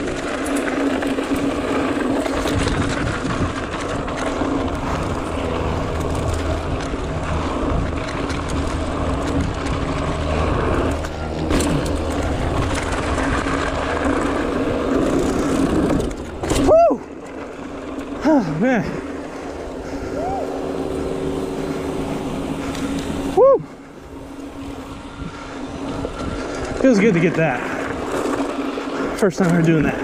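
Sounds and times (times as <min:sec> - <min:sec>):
bike clicks and rattles: 0:00.0 - 0:30.0
wind and tyre noise: 0:00.0 - 0:30.0.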